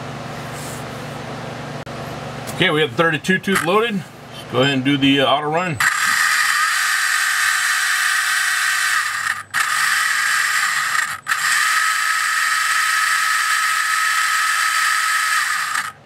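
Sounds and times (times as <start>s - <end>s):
electric motor high whine: 5.8s - 16.0s.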